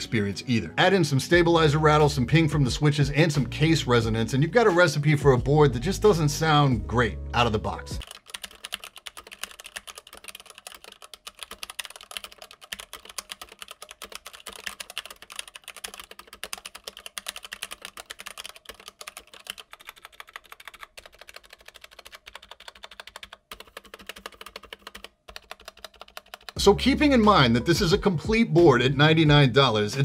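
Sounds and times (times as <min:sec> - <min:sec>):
mechanical keyboard typing: 0:08.0 - 0:26.6.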